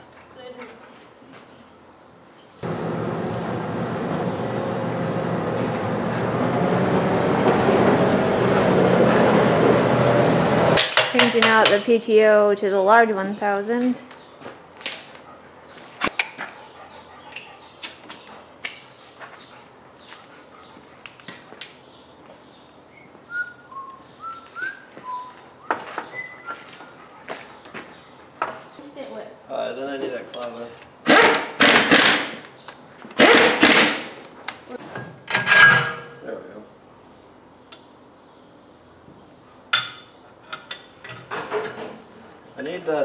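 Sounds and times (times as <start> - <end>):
tractor diesel engine running: 2.6 - 10.8
metallic clinks: 21.6 - 22.0
person whistling a tune: 23.3 - 25.4.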